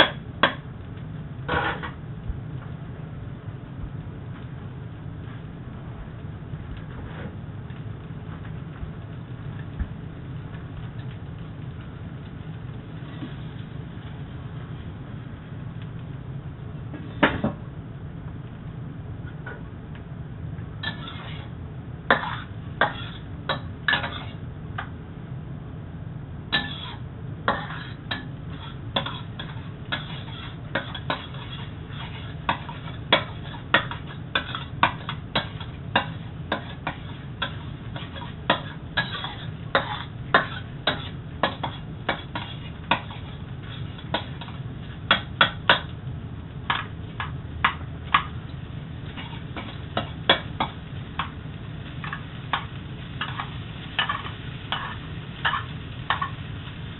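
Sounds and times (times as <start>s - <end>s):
metal utensil scraping wok: 1.5s - 2.0s, 20.8s - 24.5s, 26.5s - 46.0s, 46.6s - 56.9s.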